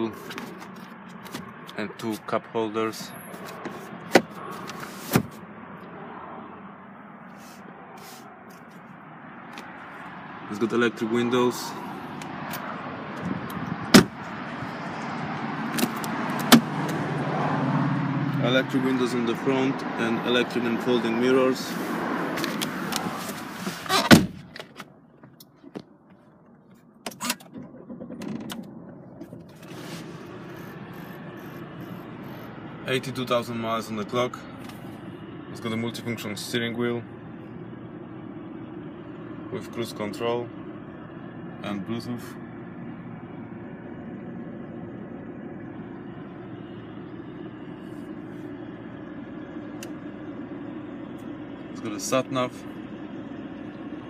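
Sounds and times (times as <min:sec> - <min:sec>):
car cabin hum: 0:03.3 - 0:06.0, 0:11.1 - 0:17.3, 0:18.4 - 0:54.0
diesel engine starting and idling: 0:09.0 - 0:24.2, 0:26.9 - 0:54.0.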